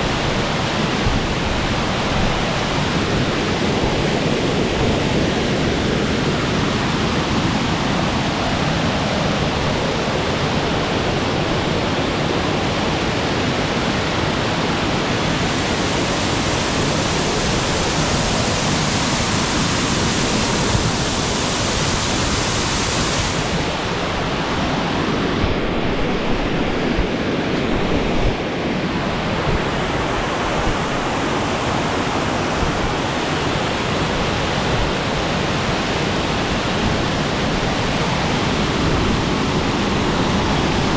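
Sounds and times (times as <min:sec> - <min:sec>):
waterfall crashing over rock: 0:00.0 - 0:25.4.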